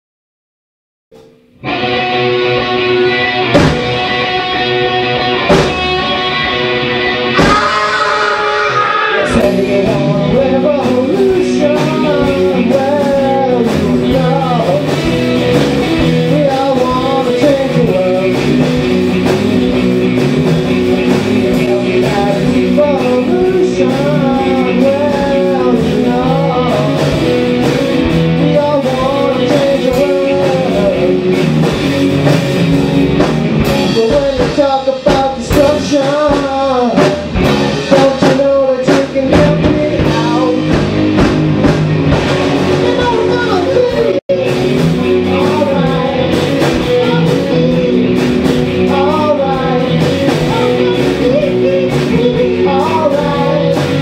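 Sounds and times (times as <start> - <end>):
rock band playing: 1.1 - 54.0
person singing: 7.3 - 15.4, 16.0 - 19.0, 21.3 - 31.5, 33.8 - 40.9, 42.4 - 54.0.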